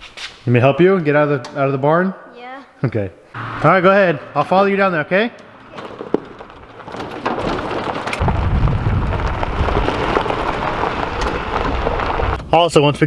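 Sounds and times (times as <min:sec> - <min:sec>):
tyres crunching on gravel: 0:05.2 - 0:12.4
low rumble: 0:07.5 - 0:12.4.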